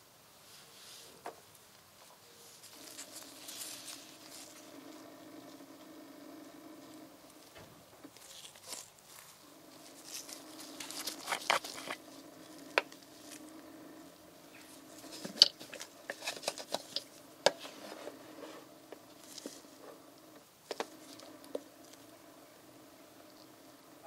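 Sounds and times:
low steady hum: 0.0s - 24.0s
glove and plastic rustling: 0.5s - 5.6s, 8.0s - 22.1s.

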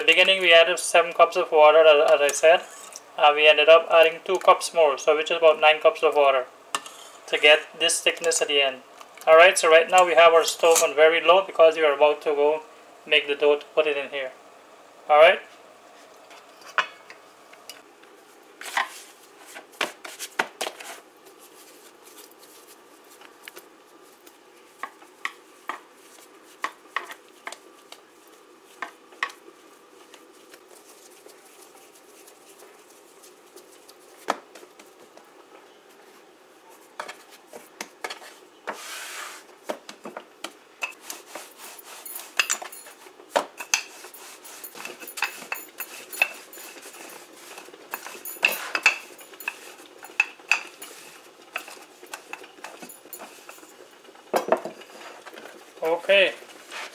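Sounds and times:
rolling pin rolling dough: 18.6s - 56.9s.

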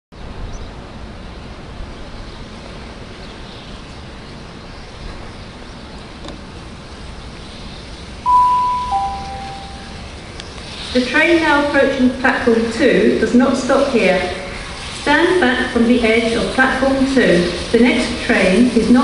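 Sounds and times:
announcement chime tone: 8.3s - 10.1s.

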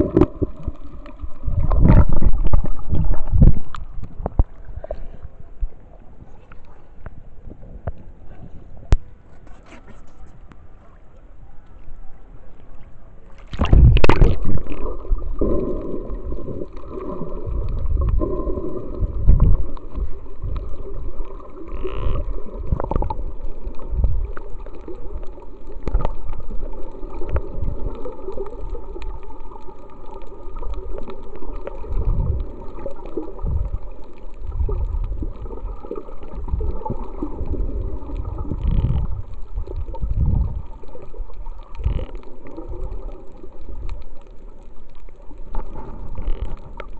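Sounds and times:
muffled underwater gurgles: 0.0s - 9.3s, 10.1s - 46.9s
splash into water: 13.4s - 15.0s.

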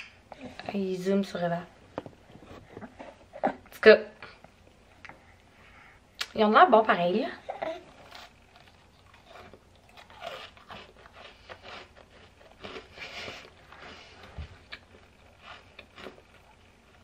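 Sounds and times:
person chewing crunchy cookie: 7.9s - 17.0s.

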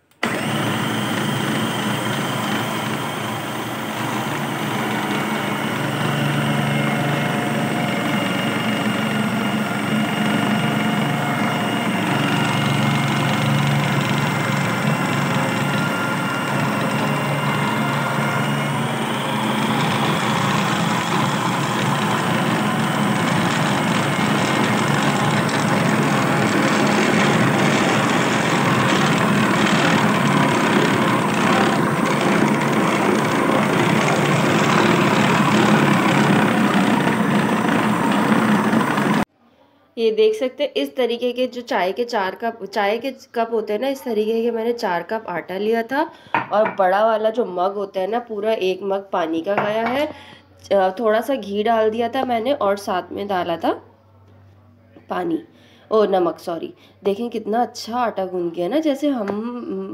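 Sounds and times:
food processor motor humming: 0.0s - 39.3s.

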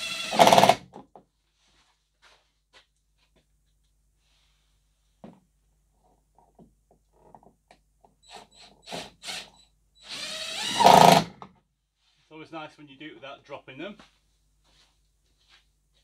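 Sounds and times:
cordless drill driving screw: 0.0s - 0.8s, 8.2s - 11.5s.

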